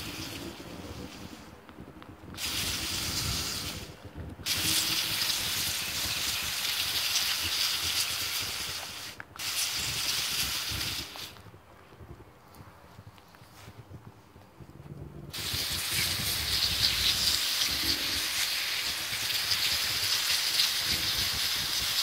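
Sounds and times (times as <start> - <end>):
hose nozzle spraying water: 0.0 - 1.5, 2.3 - 11.4, 15.3 - 22.0.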